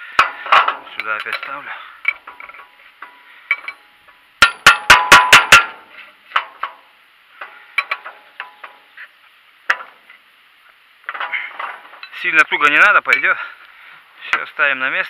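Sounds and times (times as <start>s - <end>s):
wrench clanking against metal: 4.4s - 5.8s.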